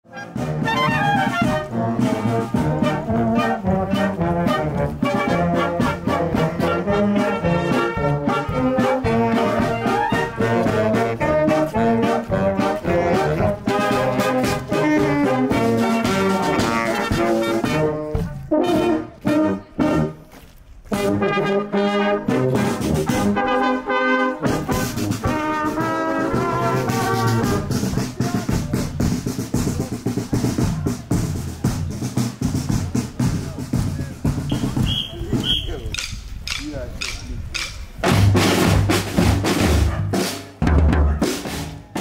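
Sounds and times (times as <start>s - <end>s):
marching wind band playing: 0.0s - 42.0s.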